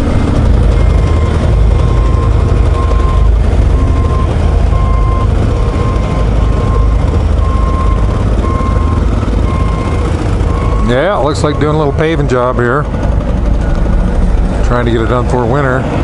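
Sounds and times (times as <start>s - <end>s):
motorcycle rumble: 0.0s - 16.0s
wind: 0.0s - 16.0s
back-up alarm beeping: 0.6s - 12.6s.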